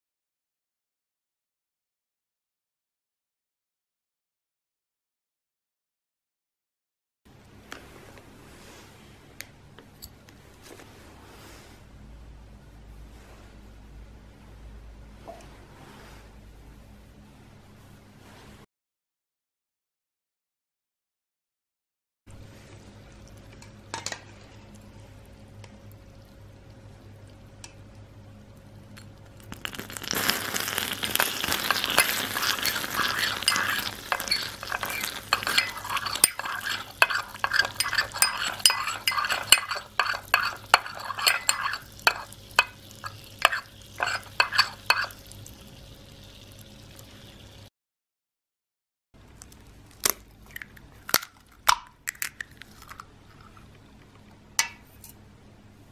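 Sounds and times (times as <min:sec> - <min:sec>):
faint steady hum: 0:22.3 - 0:47.7
caramel sizzling and crackling: 0:28.8 - 0:47.7
spoon clinking against ramekin: 0:31.6 - 0:45.4.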